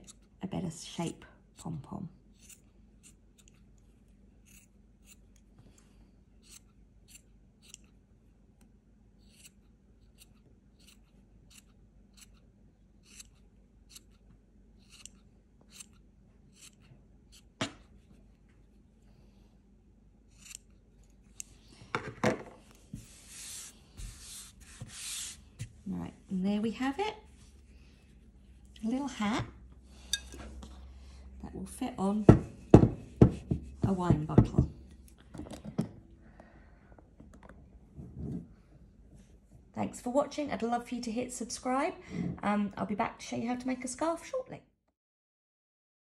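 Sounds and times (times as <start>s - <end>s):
scissors snipping yarn: 1.5s - 5.8s, 6.4s - 8.0s, 8.6s - 18.0s, 20.3s - 21.6s
hand brushing across table: 22.8s - 25.8s.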